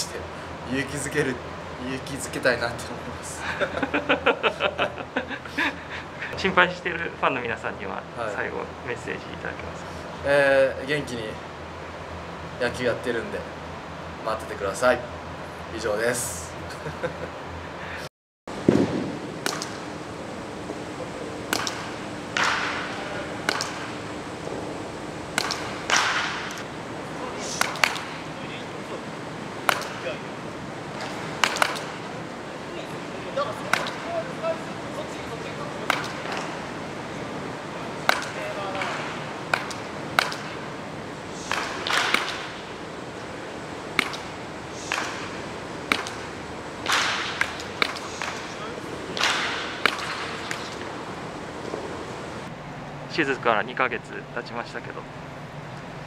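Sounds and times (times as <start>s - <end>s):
faint steady hum: 0.0s - 56.0s
bat cracking against ball: 18.6s - 20.0s, 21.5s - 24.7s, 25.3s - 26.7s, 27.4s - 28.3s, 29.6s - 30.3s, 30.9s - 32.3s, 33.6s - 34.3s, 35.8s - 52.2s
baseball hits echoing: 18.6s - 52.3s
baseball bat swing whooshes: 41.3s - 42.7s, 43.9s - 50.8s.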